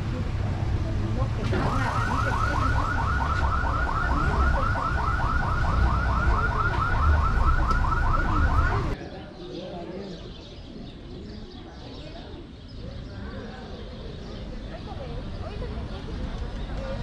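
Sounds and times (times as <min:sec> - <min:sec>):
idling vehicles rumbling: 0:00.0 - 0:09.0
car alarm warbling: 0:01.5 - 0:09.0.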